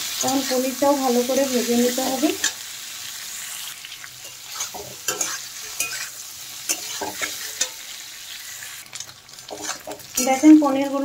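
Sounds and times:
food sizzling in oil: 0.0 - 11.0
metal spatula scraping pan: 4.2 - 7.9, 9.4 - 11.0.

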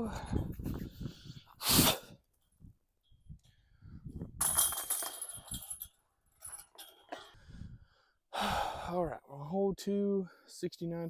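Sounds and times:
disc striking basket chains: 4.4 - 7.1
jangle of chains and metal: 4.4 - 7.1.

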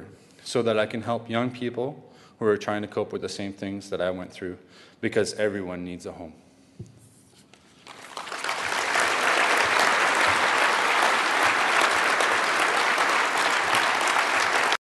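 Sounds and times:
audience applause: 7.8 - 14.8.

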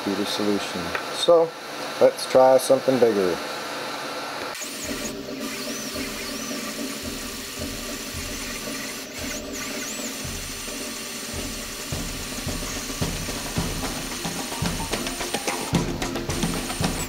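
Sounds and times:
stepper motors humming: 4.4 - 17.0
high swooping motor whines: 4.6 - 17.0.

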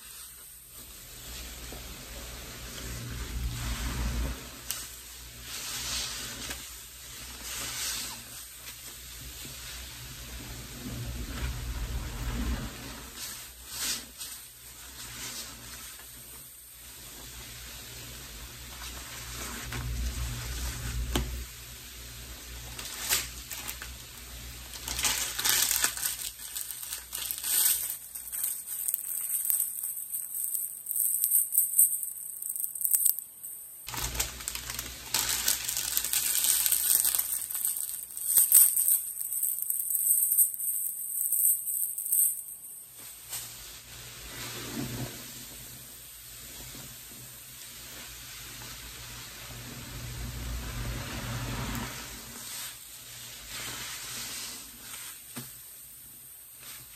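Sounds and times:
suds crackling and fizzing: 0.0 - 56.9
sponges squeezed in soapy water: 22.6 - 31.8, 33.9 - 39.7.

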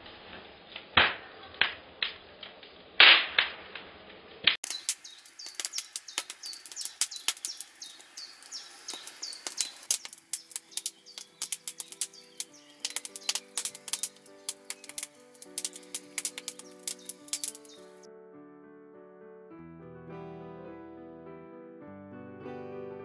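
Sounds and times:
campfire crackling and popping: 1.0 - 18.1.

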